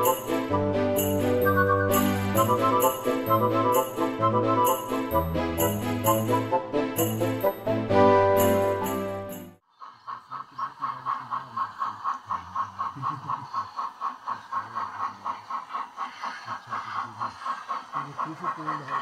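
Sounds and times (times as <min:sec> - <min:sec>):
model train running rhythmically: 0:00.0 - 0:09.2, 0:09.8 - 0:19.0
festive holiday tune with sleigh bells: 0:00.0 - 0:09.6.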